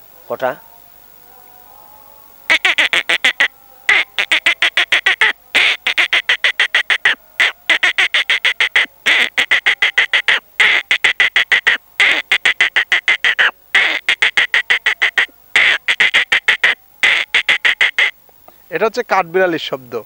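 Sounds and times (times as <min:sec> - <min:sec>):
man imitating squirrel chatter: 0:02.5 - 0:18.2.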